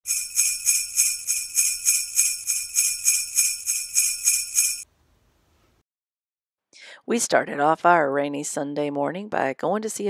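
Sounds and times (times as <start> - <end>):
sleigh bells shaking: 0.1 - 4.8.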